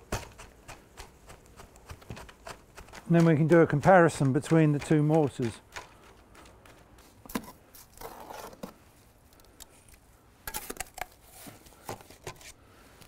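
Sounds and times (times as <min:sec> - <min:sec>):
trowel scraping metal bucket: 0:01.8 - 0:08.8.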